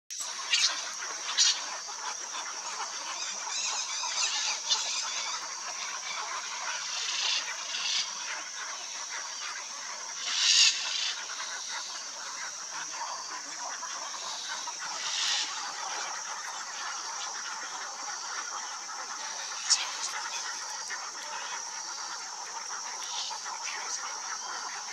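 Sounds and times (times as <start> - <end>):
high-pitched background hiss: 0.1 - 24.9
macaw squawks: 0.2 - 24.9.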